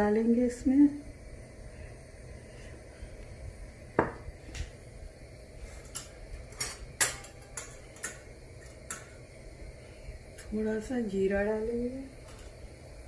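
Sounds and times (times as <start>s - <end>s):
low steady rumble: 0.0s - 13.0s
pots and pans clinking: 5.9s - 9.2s.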